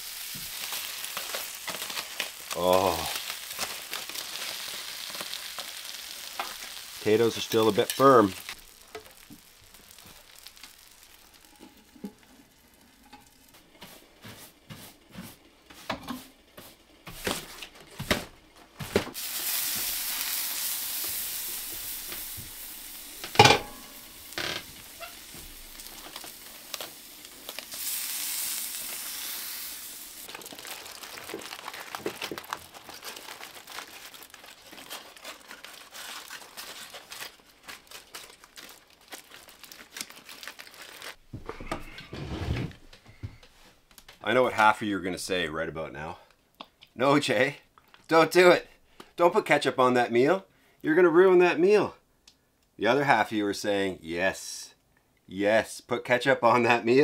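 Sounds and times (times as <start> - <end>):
aluminium foil crinkling: 0.0 - 13.7, 19.1 - 41.2
food sizzling on stove: 0.0 - 14.1, 19.1 - 34.4.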